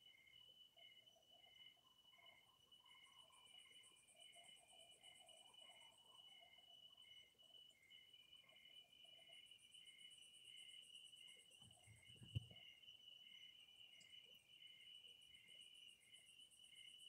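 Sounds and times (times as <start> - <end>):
crickets chirping: 0.0 - 17.0
high insect pulsing: 11.3 - 12.8.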